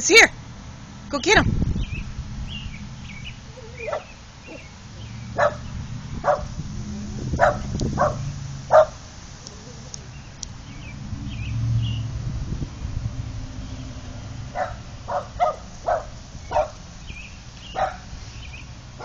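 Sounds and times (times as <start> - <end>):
car engine approaching: 0.0 - 19.0
dog barking: 3.5 - 4.7, 5.4 - 6.6, 7.3 - 9.0, 14.5 - 16.8, 17.7 - 18.1.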